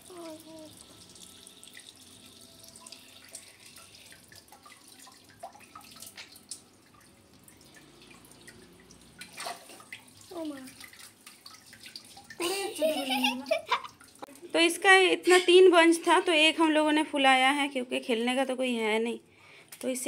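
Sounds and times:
tap water running through hose: 0:00.0 - 0:14.9
water dripping into sink: 0:00.1 - 0:12.6.

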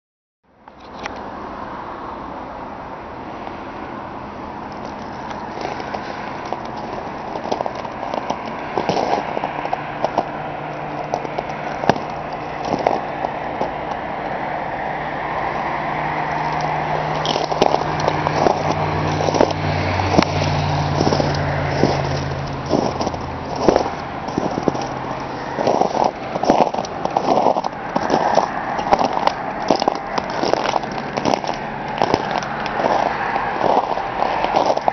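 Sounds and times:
steady rumbling background: 0:02.2 - 0:34.9
footsteps crunching on icy snow: 0:04.6 - 0:34.9
ice cracking and clicking: 0:04.8 - 0:14.0, 0:16.3 - 0:34.9.

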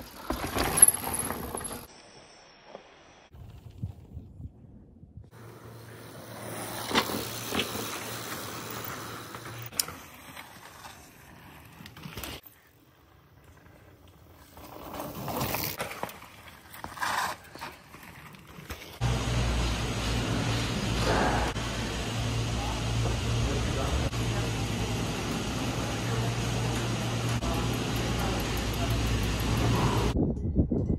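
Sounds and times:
bike tyres clattering over planks: 0:00.0 - 0:01.9, 0:05.8 - 0:09.7.

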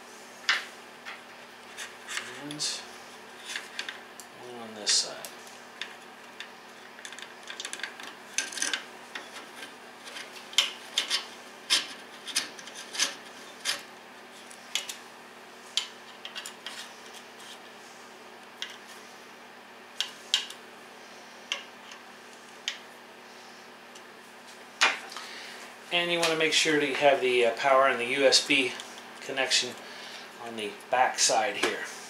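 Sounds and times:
hex key clicking and scraping: 0:05.8 - 0:15.0.

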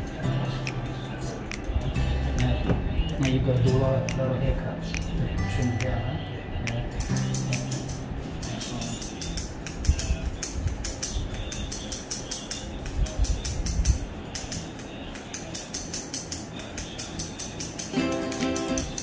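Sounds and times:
scissors snipping hair: 0:00.0 - 0:02.6, 0:06.6 - 0:19.0.

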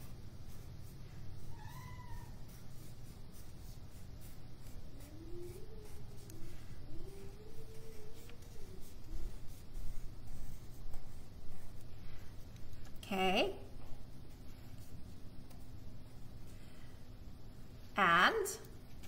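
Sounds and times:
pencil drawing on paper: 0:00.0 - 0:11.9.

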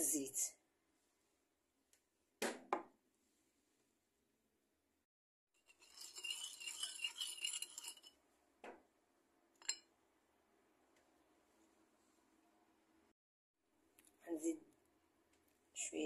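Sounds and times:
metal spoon scraping a plate: 0:05.6 - 0:08.2
spoon clinking against plate: 0:05.8 - 0:08.1, 0:09.6 - 0:09.9.

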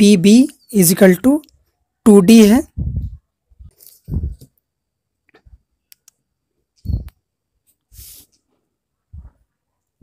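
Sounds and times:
scratchy rustle on paper: 0:07.7 - 0:08.7.

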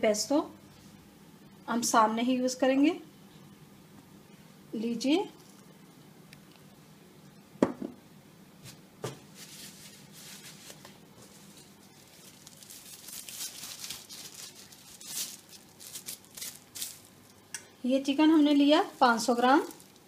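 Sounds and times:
plastic glove crinkling: 0:08.7 - 0:17.4, 0:18.1 - 0:20.0.

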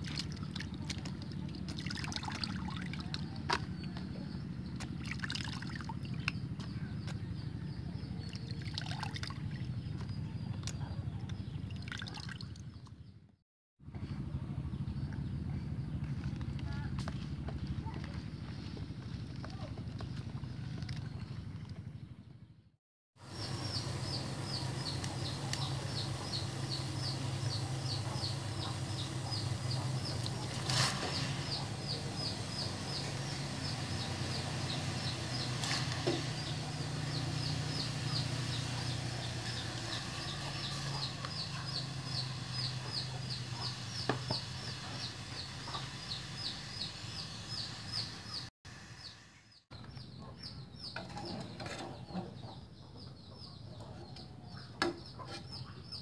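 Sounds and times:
bird chirping rapidly: 0:23.3 - 0:49.2.

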